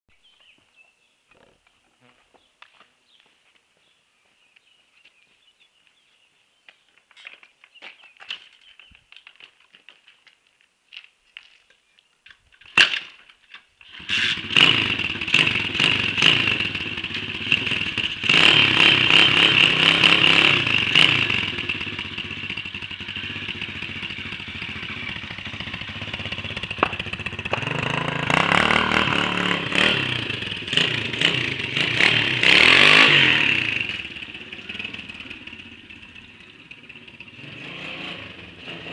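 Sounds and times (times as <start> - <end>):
motorbike engine revving and idling: 13.8 - 38.9.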